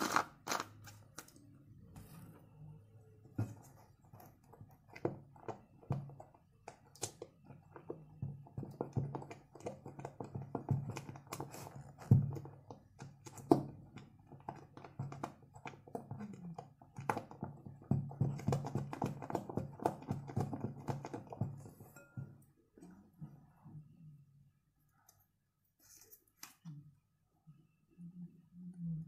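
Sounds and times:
spatula stirring sticky slime: 0:00.0 - 0:23.5.

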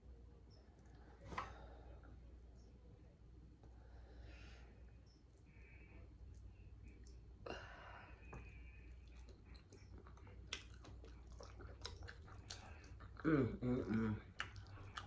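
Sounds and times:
faint chewing: 0:05.1 - 0:07.3, 0:08.2 - 0:15.0.

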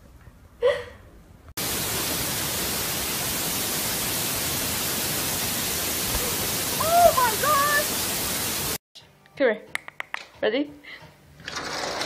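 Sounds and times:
steady static hiss: 0:01.6 - 0:08.8.

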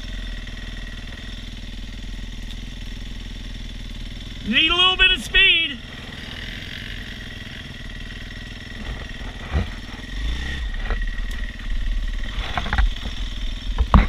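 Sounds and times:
dirt bike engines revving: 0:03.0 - 0:14.0
knocks and thuds of bike falling: 0:12.3 - 0:14.0.

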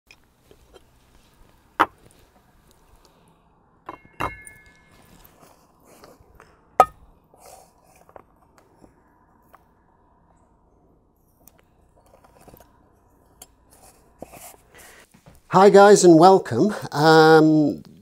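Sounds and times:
knocks with metallic ring: 0:03.8 - 0:05.2.

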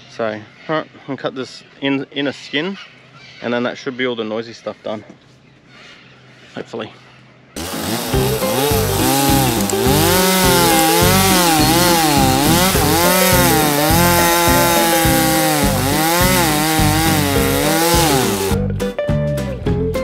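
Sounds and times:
oscillating multi-tool cutting: 0:07.6 - 0:18.6.

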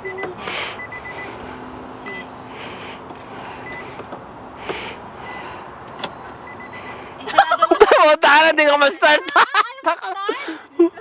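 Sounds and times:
car warning chime beeps: 0:00.0 - 0:02.4, 0:03.5 - 0:04.0, 0:05.2 - 0:07.1.

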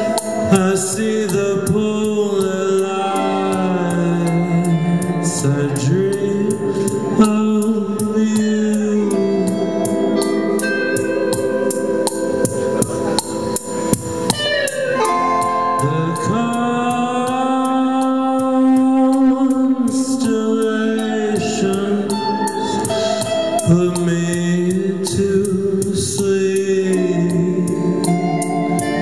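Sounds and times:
man singing: 0:00.0 - 0:11.5, 0:14.7 - 0:29.0
electric guitar: 0:00.0 - 0:29.0
keyboard: 0:00.0 - 0:29.0
drum beat: 0:11.0 - 0:17.6.

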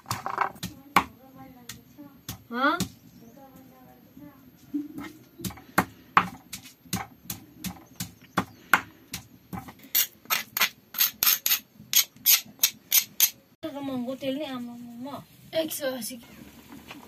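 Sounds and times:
stone grinding on stone slab: 0:09.9 - 0:13.3
metal spoon scraping stone: 0:09.9 - 0:13.4.

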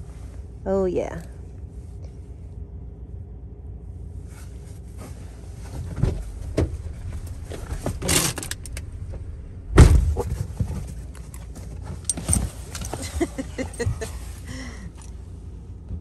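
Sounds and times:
car interior low rumble: 0:00.0 - 0:16.0
knocks and rustles: 0:05.0 - 0:14.3
car door thump: 0:06.0 - 0:10.8.

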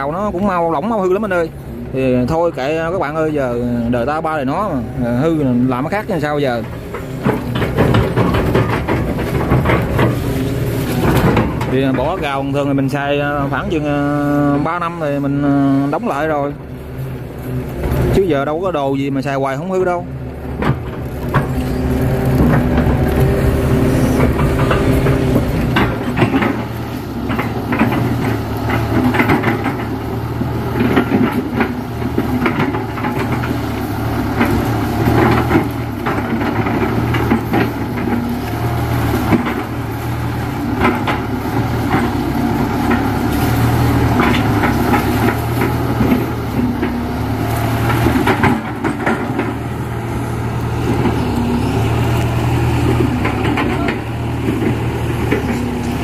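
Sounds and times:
excavator diesel engine working: 0:00.0 - 0:56.0
bucket and boom clanking: 0:05.1 - 0:15.0, 0:20.3 - 0:56.0.

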